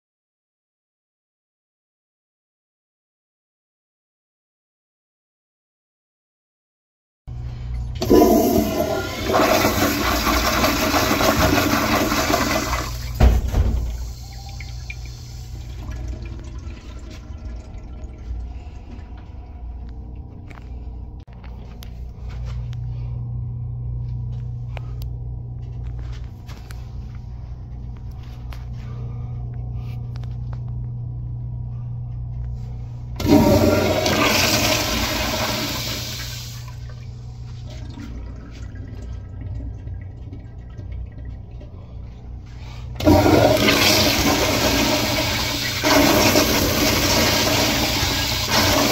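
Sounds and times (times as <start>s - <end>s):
toilet flushing: 7.7s - 20.4s, 33.2s - 48.9s.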